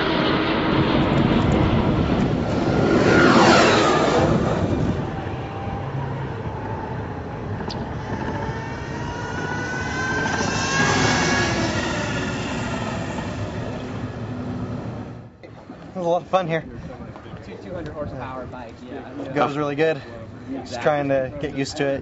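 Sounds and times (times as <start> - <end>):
electric motorcycle whine passing: 0.0 - 15.4.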